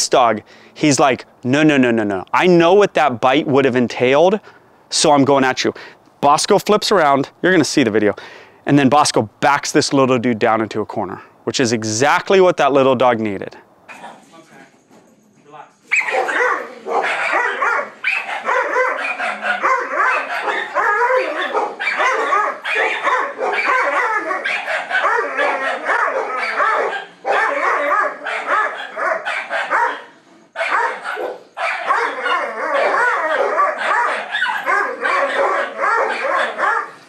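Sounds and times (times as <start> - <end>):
dogs barking and yipping: 15.8 - 37.0.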